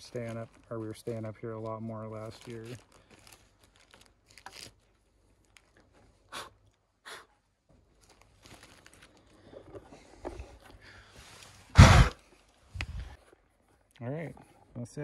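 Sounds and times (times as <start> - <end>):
plastic bag crinkling: 0.0 - 5.9, 8.0 - 9.7
loud brief thump: 11.8 - 12.2.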